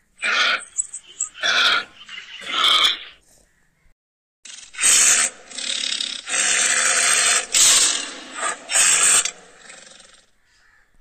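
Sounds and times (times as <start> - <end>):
tiger growling: 0.2 - 3.2, 4.7 - 10.4.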